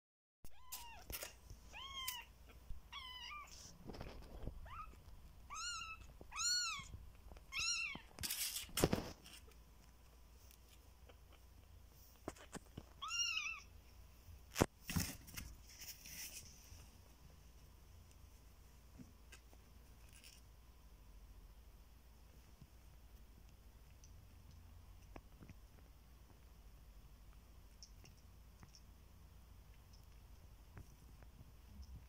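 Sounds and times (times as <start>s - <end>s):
kitten meowing: 0.5s - 2.3s, 2.9s - 3.6s, 4.6s - 8.1s, 13.0s - 13.7s.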